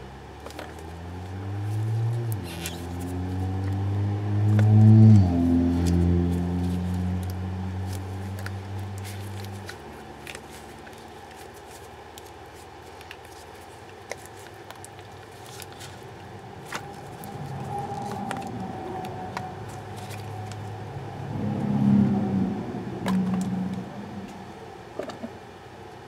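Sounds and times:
low steady hum: 0.0 - 26.0
silicone mold crackling and rubbing: 4.4 - 20.8
low rumble: 16.7 - 24.8.

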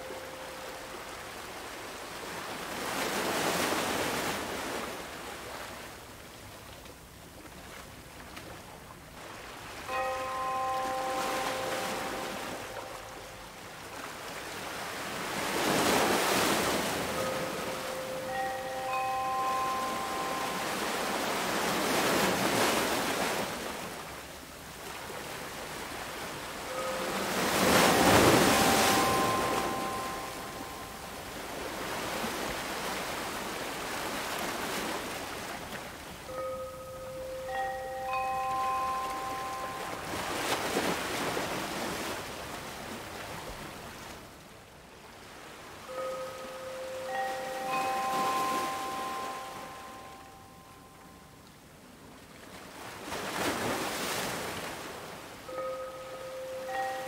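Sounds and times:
faint chime tones: 0.0 - 1.3, 9.8 - 13.7, 15.8 - 22.9, 26.6 - 32.5, 36.2 - 41.6, 45.6 - 51.5, 55.4 - 57.0
ocean surf washing ashore: 0.0 - 51.2, 52.1 - 57.0
ocean wave washing in: 25.8 - 35.1.

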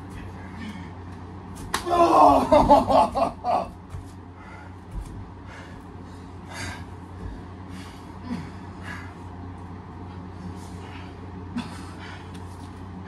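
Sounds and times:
person breathing hard: 4.3 - 9.4, 10.2 - 12.5.

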